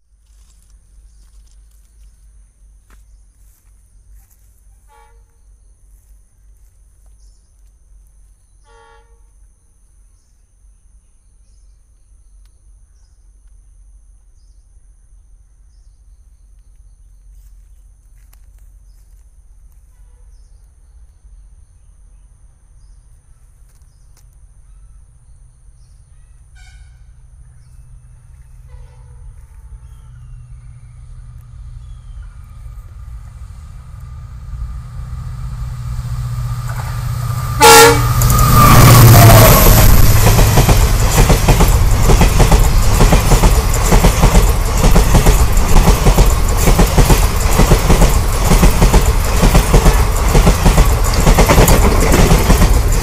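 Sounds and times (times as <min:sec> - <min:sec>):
insects droning: 0:00.0 - 0:53.0
diesel locomotive rumble: 0:25.5 - 0:53.0.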